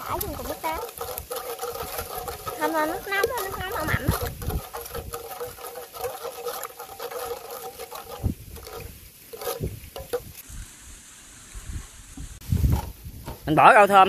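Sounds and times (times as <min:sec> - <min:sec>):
ladle scraping metal pot: 0:00.0 - 0:10.4.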